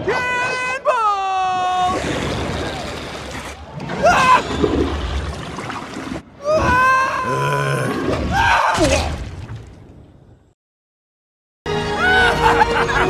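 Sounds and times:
splashing water: 1.9 - 6.2.

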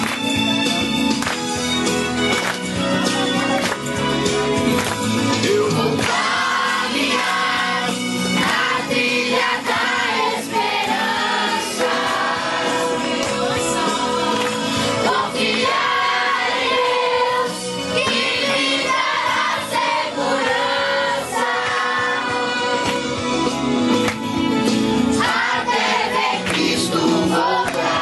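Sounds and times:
group singing gospel song: 5.3 - 23.4, 25.0 - 28.0.

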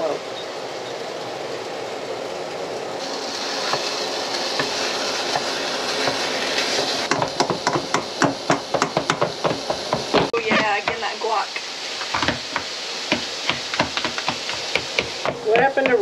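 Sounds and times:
meat sizzling in a frying pan: 3.0 - 16.0
spatula scraping and chopping: 4.6 - 11.1, 12.0 - 16.0.

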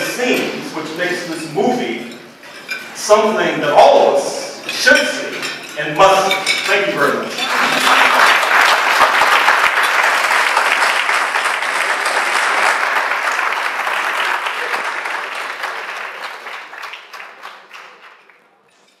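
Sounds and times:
audience applauding: 7.4 - 18.6.

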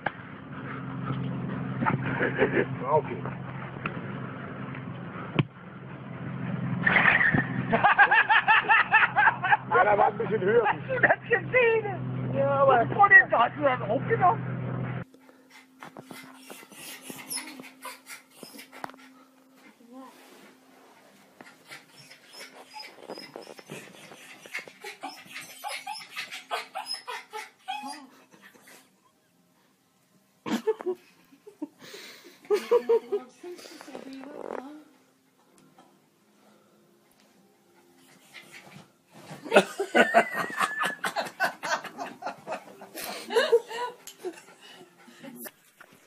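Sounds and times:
small dog whining and yipping: 16.2 - 18.8, 21.7 - 28.2.

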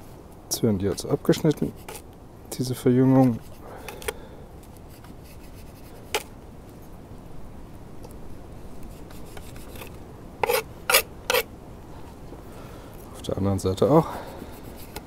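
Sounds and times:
knife rubbing and scraping rope: 1.0 - 2.1, 3.2 - 6.9, 8.7 - 11.5, 14.2 - 15.0.

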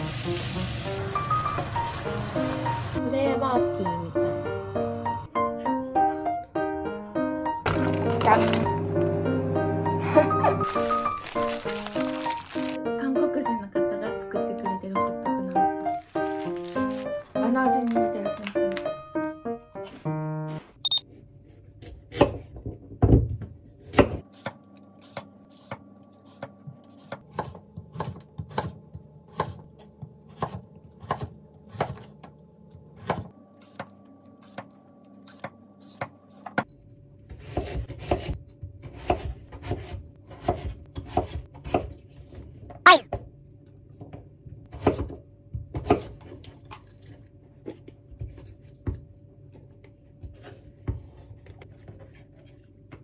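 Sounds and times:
knife chopping on wooden board: 23.8 - 32.1, 37.4 - 41.9.

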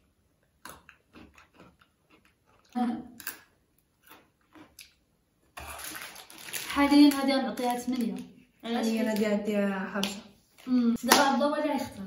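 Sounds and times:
people chewing crunchy snacks: 0.0 - 7.2
plastic wrapper rustling: 5.6 - 9.4.

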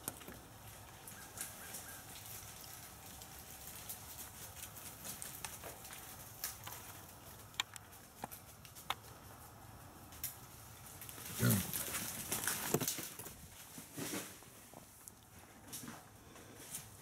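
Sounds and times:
rustling through leaves and brush: 0.0 - 17.0
hog grunting: 11.2 - 12.2.

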